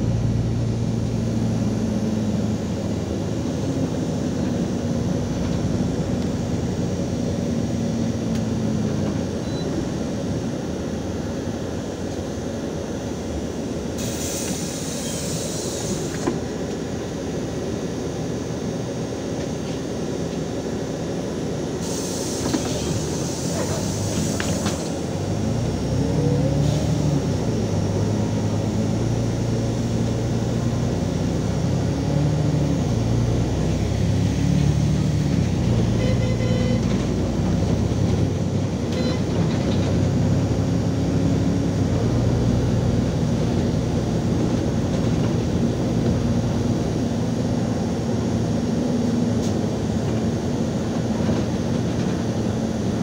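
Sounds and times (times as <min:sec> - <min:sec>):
bus diesel engine accelerating: 0:00.0 - 0:53.0
air hiss: 0:14.0 - 0:16.2, 0:21.8 - 0:24.9.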